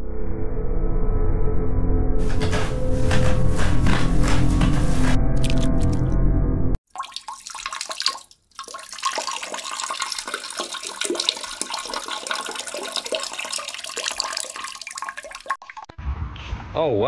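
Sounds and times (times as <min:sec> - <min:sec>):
toilet flushing: 0:07.0 - 0:15.9.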